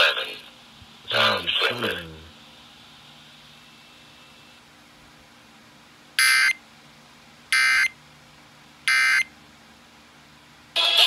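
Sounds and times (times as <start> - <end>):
loud music: 10.8 - 11.0.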